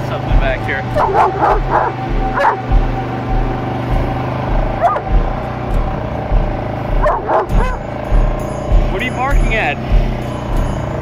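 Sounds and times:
atv engine idling: 0.0 - 11.0
dog barking: 0.9 - 2.8, 4.8 - 5.2, 7.0 - 7.9.

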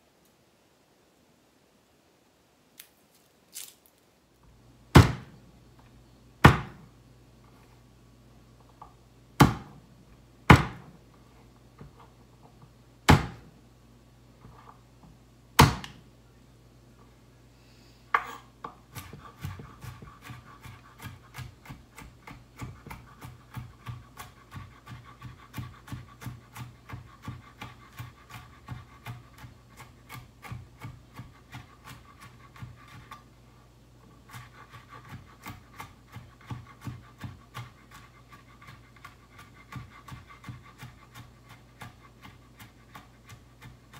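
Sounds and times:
knife chopping on wooden board: 4.9 - 5.3, 6.4 - 6.8, 9.4 - 9.8, 10.5 - 10.9, 13.1 - 13.5, 15.6 - 16.0, 18.2 - 33.2, 34.3 - 43.9.

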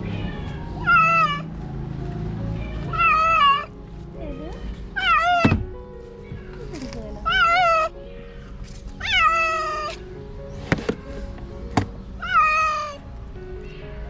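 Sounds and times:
cat meowing: 0.0 - 1.5, 2.6 - 3.7, 4.5 - 5.6, 6.3 - 10.0, 12.2 - 13.0.

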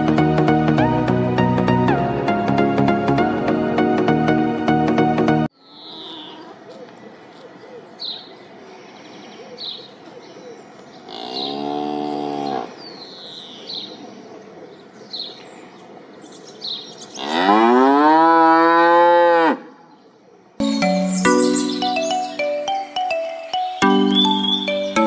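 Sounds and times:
cows mooing: 11.1 - 12.8, 17.2 - 19.6
chiming mallet instrument music: 20.6 - 25.0.

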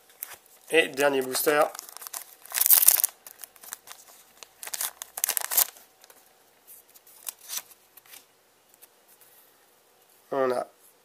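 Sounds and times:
foil wrapper crinkling and tearing: 0.2 - 6.2
cards sliding out: 7.2 - 8.2.

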